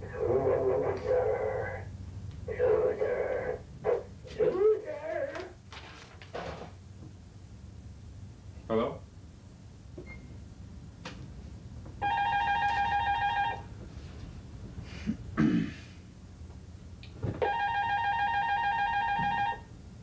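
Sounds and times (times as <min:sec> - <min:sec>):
desk telephone ringing: 0:12.0 - 0:13.7, 0:17.4 - 0:19.7.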